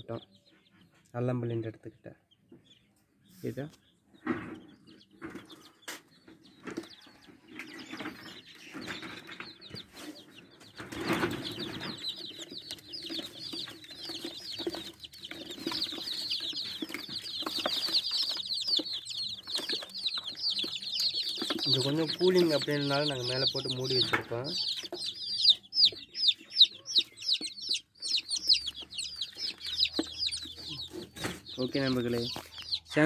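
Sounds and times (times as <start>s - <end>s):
chicks peeping: 0.0s - 33.0s
knocks and handling noises: 10.6s - 22.8s.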